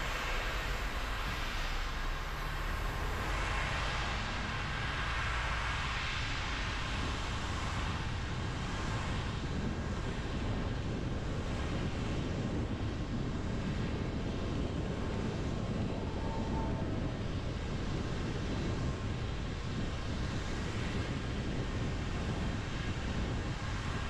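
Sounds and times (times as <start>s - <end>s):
car rumbling on wet road: 0.0s - 6.2s.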